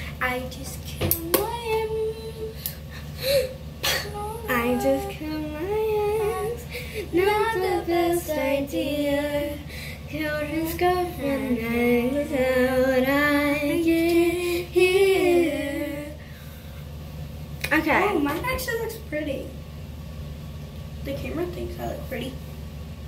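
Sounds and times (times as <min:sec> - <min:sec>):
girl singing unaccompanied: 0:00.2 - 0:02.6, 0:03.9 - 0:16.2.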